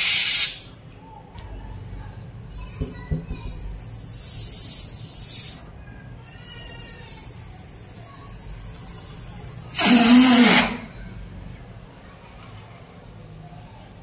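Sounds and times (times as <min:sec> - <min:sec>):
air hissing out of balloon: 0:00.0 - 0:00.7, 0:03.6 - 0:10.9
balloon neck squealing: 0:09.7 - 0:10.9.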